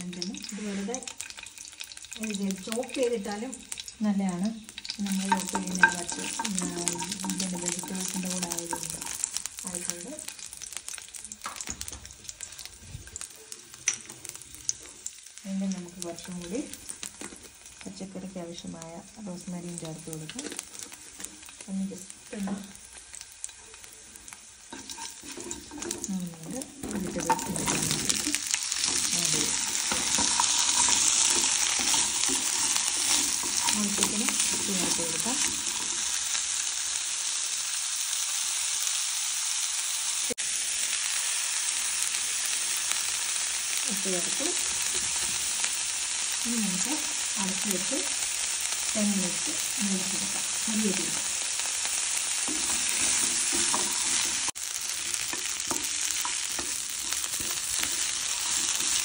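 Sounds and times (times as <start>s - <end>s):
vegetables sizzling in oil: 0.0s - 59.0s
spatula scraping a pan: 24.2s - 26.1s, 26.8s - 36.3s, 51.9s - 59.0s.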